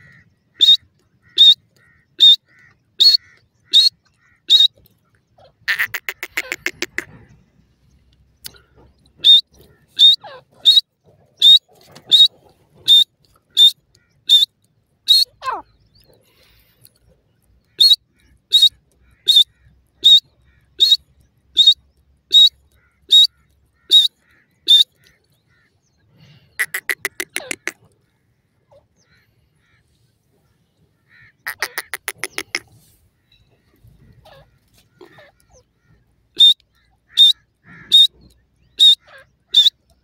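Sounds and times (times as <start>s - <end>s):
francolin calling: 0.0s - 4.8s, 9.2s - 12.3s, 12.9s - 16.0s, 17.8s - 21.0s, 21.6s - 25.0s, 31.2s - 32.6s, 36.3s - 38.1s, 38.7s - 39.9s
fast rattling bird call: 5.7s - 7.1s, 26.6s - 27.8s, 31.2s - 32.7s.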